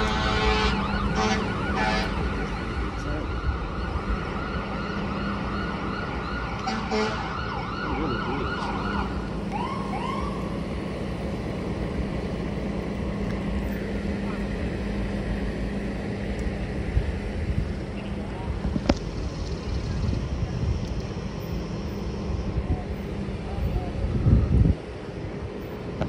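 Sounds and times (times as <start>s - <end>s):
emergency siren yelping: 0.0s - 10.7s
road traffic hum: 0.0s - 26.0s.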